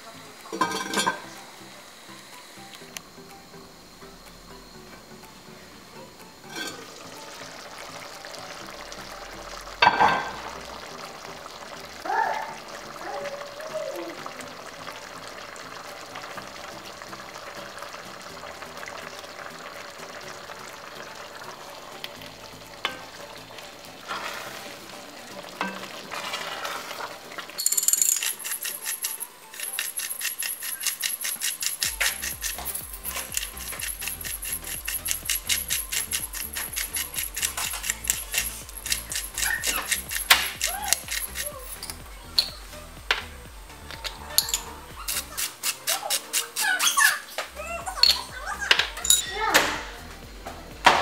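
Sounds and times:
porridge bubbling in a pot: 0.0 - 27.6, 28.4 - 41.8
pot lid clank: 0.6 - 1.3, 6.5 - 6.9, 9.8 - 10.4
pepper grinder clicking: 27.6 - 42.0, 43.9 - 47.0.

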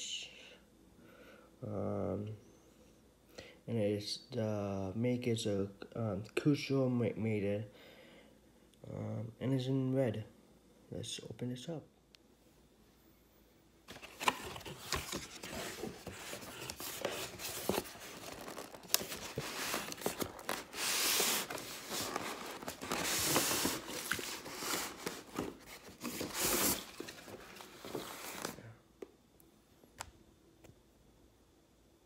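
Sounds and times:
cardboard box rustling: 13.9 - 28.6
packaging sliding scrapes: 13.9 - 28.6.

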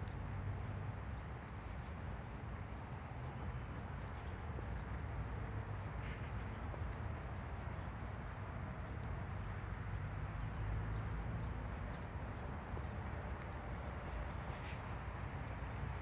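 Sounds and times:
wind buffeting microphone: 11.2 - 16.0.

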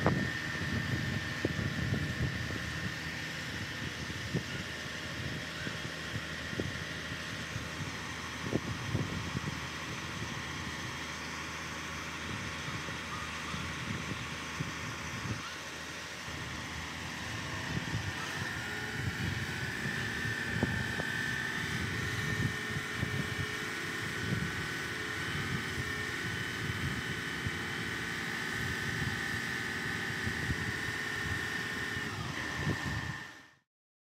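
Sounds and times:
gusty wind rumble: 0.0 - 13.0, 16.2 - 27.2
drone propellers whining: 0.0 - 33.5.

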